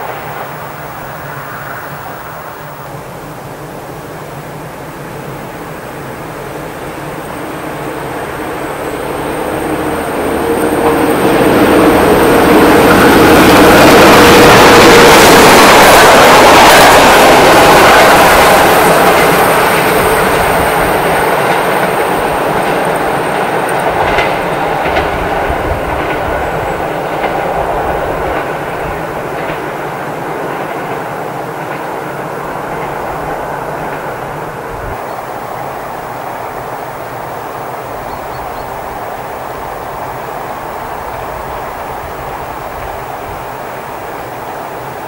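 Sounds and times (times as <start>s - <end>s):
diesel train passing: 0.0s - 45.0s
wheels clicking over rail joints: 9.6s - 35.7s.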